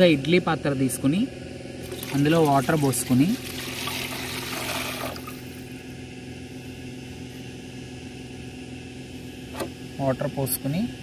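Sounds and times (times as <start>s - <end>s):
steady low hum: 0.0s - 11.0s
water pouring into pot: 1.8s - 5.4s.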